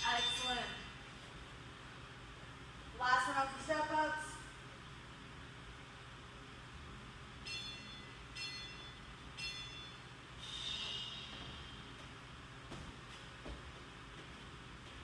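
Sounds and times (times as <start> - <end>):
timer beeps: 0.0 - 0.8.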